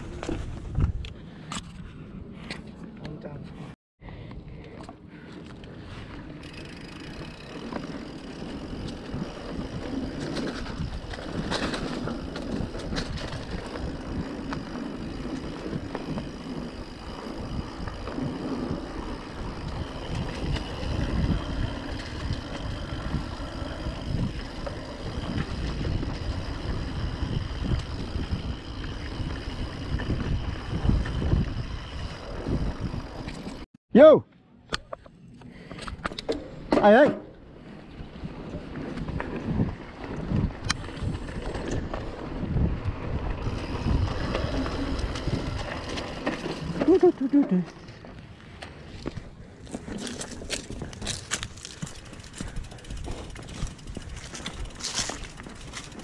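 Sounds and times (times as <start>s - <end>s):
bike tyres rumbling on dirt: 5.1s - 33.7s, 36.5s - 56.0s
wind on microphone: 8.6s - 33.5s, 37.8s - 46.0s.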